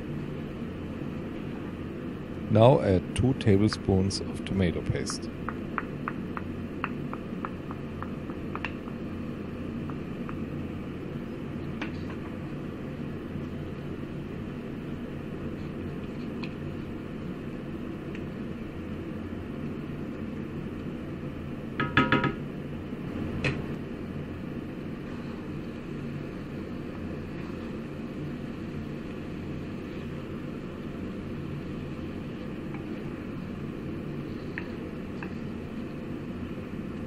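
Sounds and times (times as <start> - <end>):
knock: 21.8 - 22.4.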